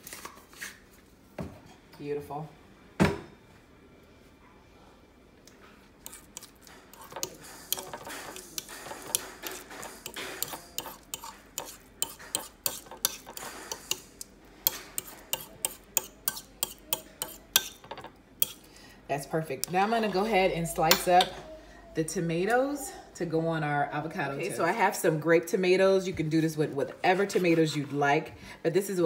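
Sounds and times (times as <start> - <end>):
fork scraping on ceramic plate: 6.0 - 18.7.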